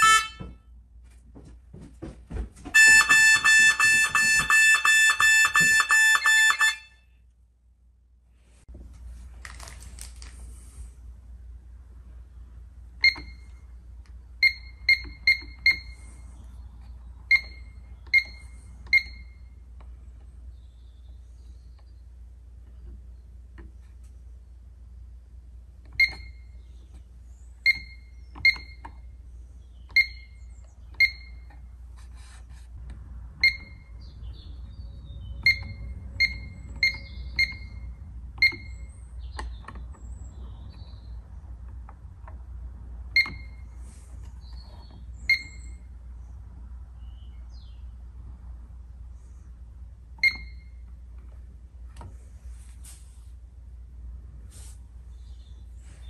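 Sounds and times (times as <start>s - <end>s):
alarm keypad beeps: 14.4s - 16.0s, 17.3s - 19.4s, 29.9s - 30.4s, 35.4s - 38.9s, 45.3s - 45.8s, 50.2s - 50.7s.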